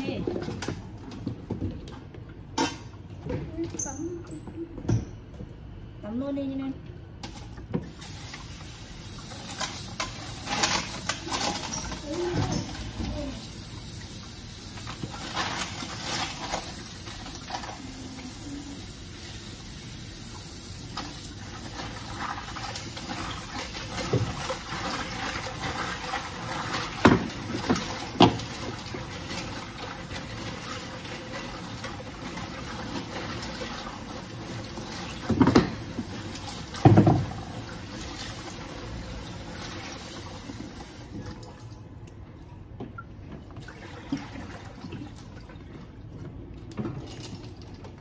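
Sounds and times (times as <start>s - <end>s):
tap water running into sink: 7.7s - 41.8s.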